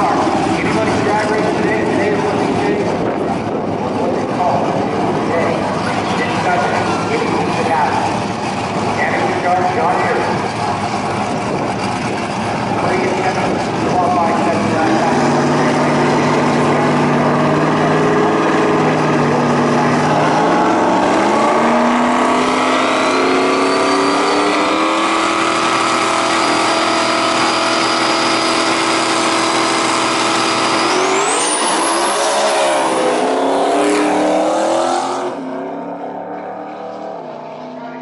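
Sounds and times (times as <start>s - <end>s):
drag racing engines revving: 0.0s - 38.0s
high whistle: 23.0s - 24.7s.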